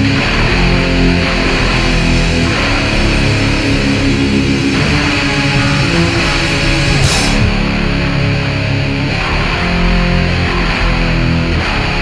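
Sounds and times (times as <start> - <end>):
hardcore punk music: 0.0 - 12.0
cymbal crash: 0.6 - 8.4.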